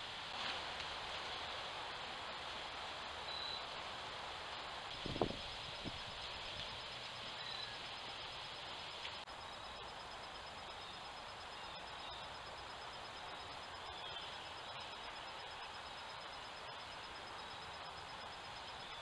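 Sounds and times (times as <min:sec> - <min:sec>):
outdoor hiss: 0:00.0 - 0:19.0
faint electronic whine: 0:04.9 - 0:19.0
faint bird chirps: 0:07.3 - 0:08.2, 0:09.4 - 0:19.0.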